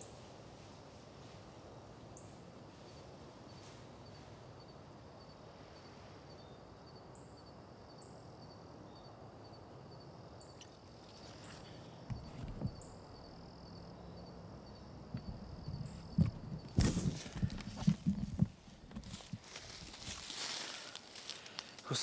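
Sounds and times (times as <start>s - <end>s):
insects chirping: 0.0s - 22.0s
camera handling thumps: 12.1s - 12.9s.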